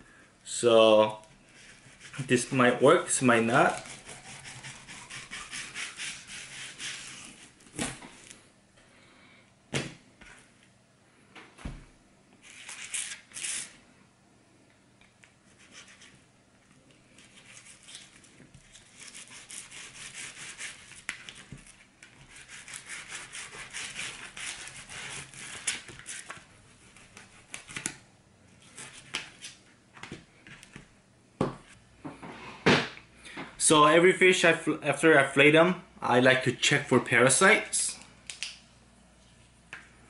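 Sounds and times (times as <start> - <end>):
knife rasping through fish fillet: 3.6 - 7.5, 18.8 - 21.0, 22.2 - 25.7.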